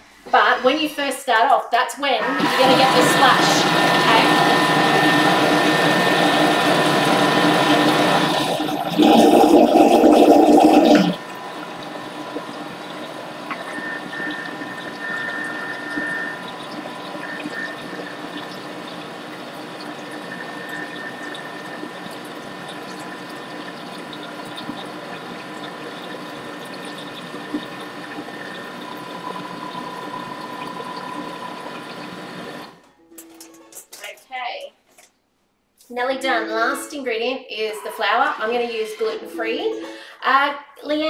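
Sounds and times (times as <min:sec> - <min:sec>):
food processor mixing batter: 0:02.2 - 0:32.8.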